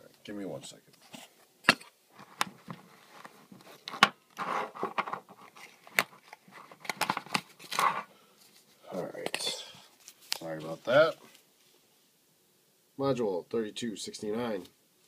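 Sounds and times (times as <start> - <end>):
packaging scraping and rustling: 2.2 - 8.7.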